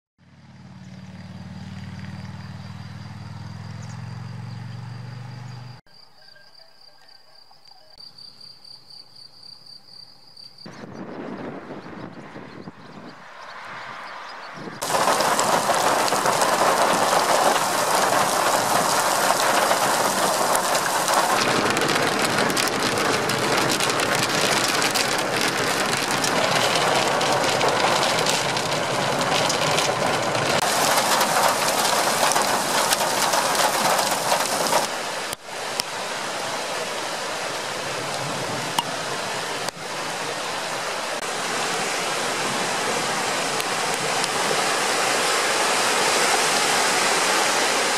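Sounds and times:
heavy rain downpour hissing: 14.8 - 47.9
river churning over rocks: 14.8 - 47.9.

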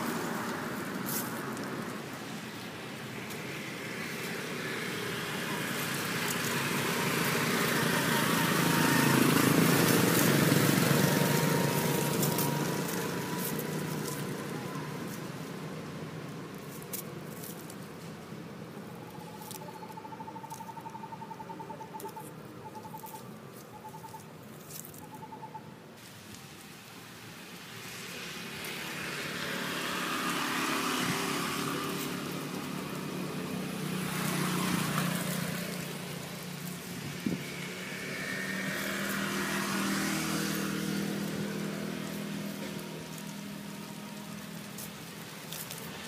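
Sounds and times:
vehicles passing on road: 0.0 - 46.0
faint chirp: 18.9 - 24.3.

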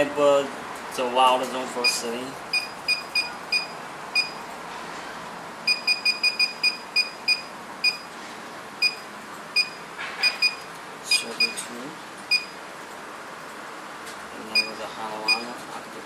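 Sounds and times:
alarm keypad beeps: 1.8 - 4.4, 5.7 - 8.1, 8.8 - 11.6, 12.3 - 12.6, 14.5 - 15.5.

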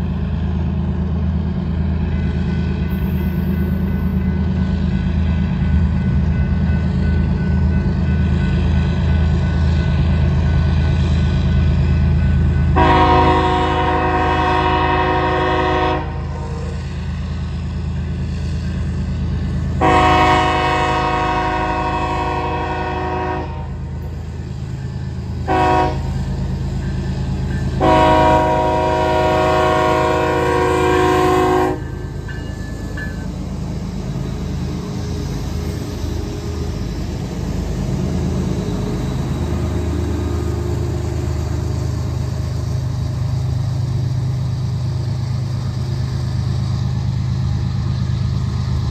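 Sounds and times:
train cars rolling past: 0.0 - 48.9
locomotive air horn blasts: 12.8 - 16.8, 19.8 - 23.8, 25.4 - 26.2, 27.8 - 32.0.

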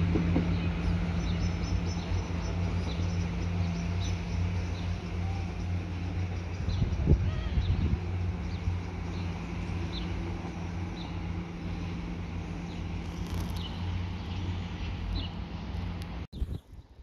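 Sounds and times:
small birds chirping: 12.4 - 15.6.

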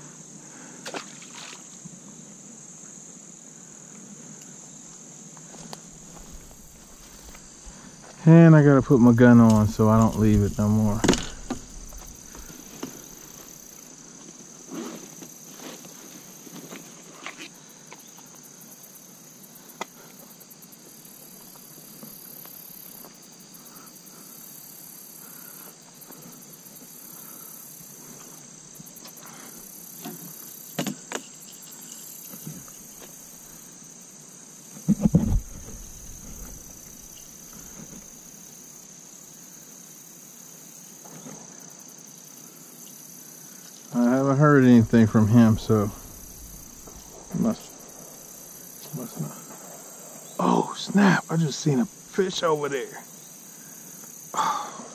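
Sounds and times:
insects droning in grass: 0.0 - 54.9
handling knocks and clicks: 9.4 - 13.0
muffled bump: 9.5 - 13.0, 34.8 - 38.0.

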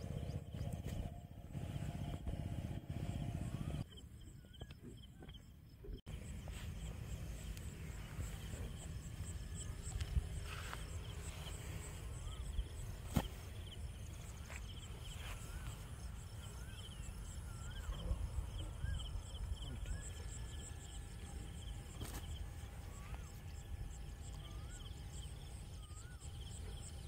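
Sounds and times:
steady low rumble: 0.0 - 27.0
birds warbling: 6.1 - 21.2.

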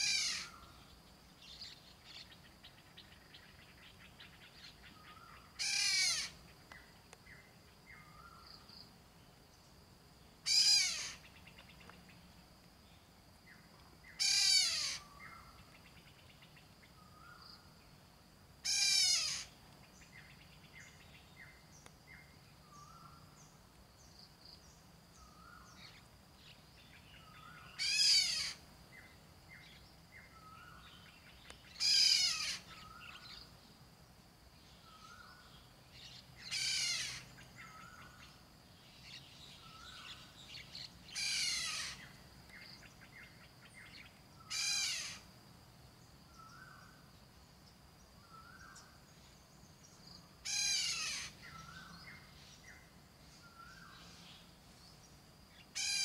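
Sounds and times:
bird calling: 0.0 - 8.7, 10.4 - 12.0, 14.1 - 15.9, 18.6 - 21.6, 27.2 - 33.5, 34.8 - 38.4, 39.0 - 45.3, 49.9 - 54.4, 55.5 - 56.0
insect whine: 0.0 - 56.0.

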